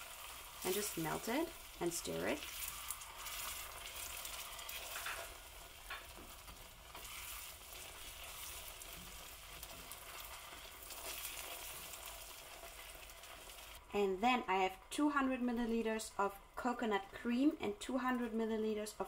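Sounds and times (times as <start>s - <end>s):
butter hissing in hot sugar: 0.0s - 13.8s.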